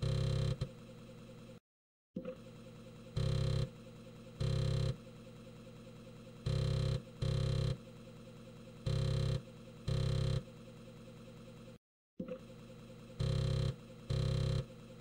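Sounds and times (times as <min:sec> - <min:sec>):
floppy disk drive motor hum: 0:00.0 - 0:00.7, 0:06.5 - 0:07.8, 0:08.9 - 0:10.4, 0:12.3 - 0:15.0.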